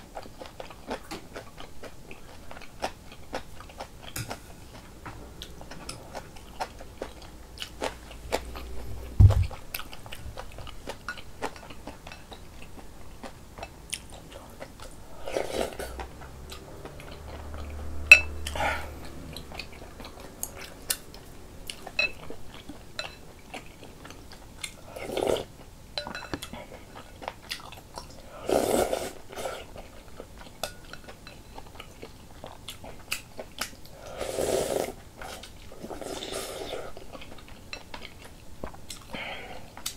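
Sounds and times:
dull thump: 9.2s - 9.6s.

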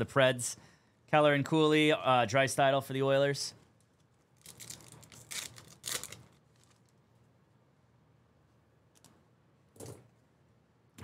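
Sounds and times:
wrapper tearing: 4.4s - 7.0s.

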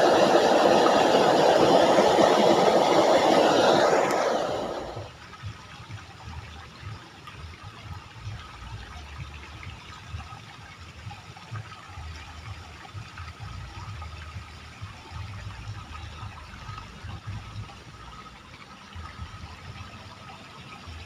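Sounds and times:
ditch water trickling: 4.7s - 21.0s.

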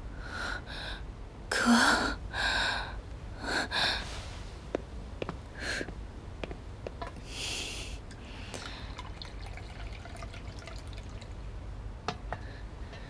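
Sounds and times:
water poured into teacup: 8.6s - 11.4s.

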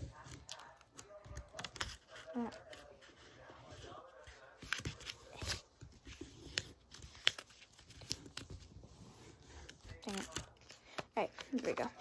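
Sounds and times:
paper being folded and creased: 0.2s - 12.0s.

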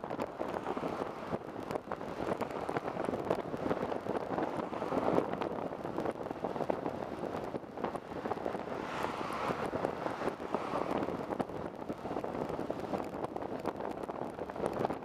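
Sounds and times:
bus engine and road noise: 0.0s - 15.0s
constant crackle: 0.0s - 15.0s
passing car hiss: 8.7s - 11.2s.

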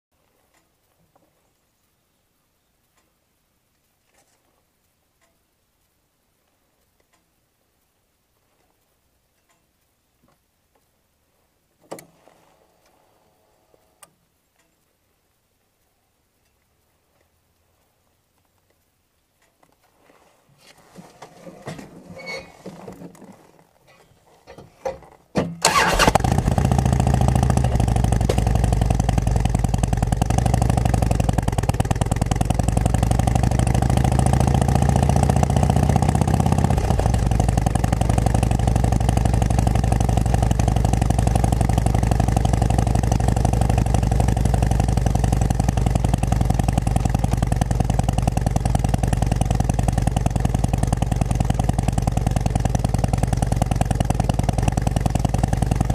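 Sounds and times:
faint clicks: 0.2s - 11.0s, 13.7s - 20.8s
motorcycle engine running: 25.6s - 55.9s.

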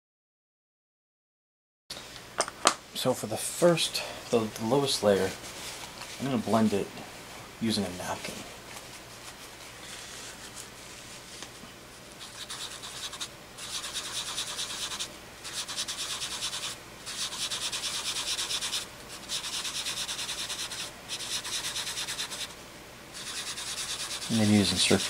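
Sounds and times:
napkin scuffing on paper: 8.1s - 11.6s.

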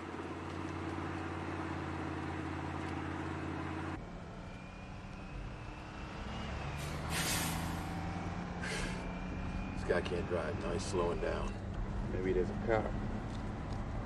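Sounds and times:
diesel truck engine drone: 0.0s - 14.0s
air brake hiss: 6.8s - 7.9s.

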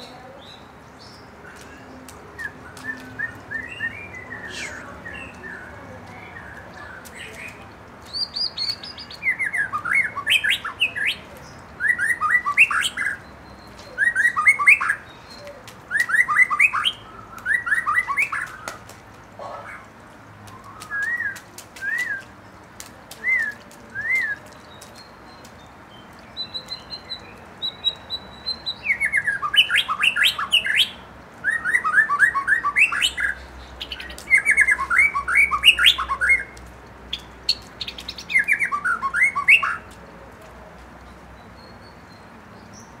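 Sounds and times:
bird whistling song: 2.4s - 5.5s, 8.1s - 11.2s, 11.8s - 18.7s, 20.5s - 22.3s, 26.4s - 39.9s.

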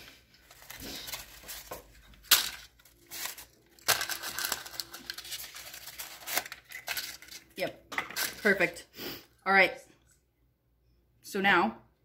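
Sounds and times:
paper liners crinkling: 0.0s - 7.6s.

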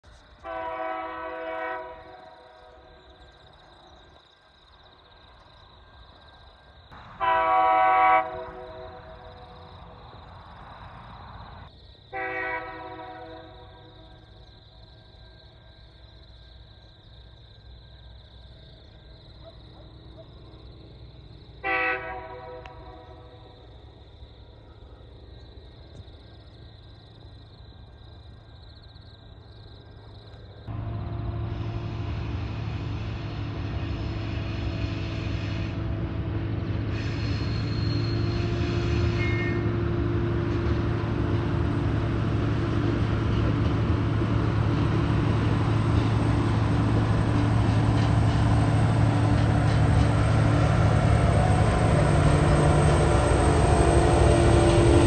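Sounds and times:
faint train rumble: 0.0s - 55.0s
insects chirring: 0.0s - 55.0s
locomotive horn blasts: 0.4s - 2.7s, 7.2s - 9.4s, 12.1s - 13.7s, 21.6s - 23.3s, 36.9s - 39.8s.

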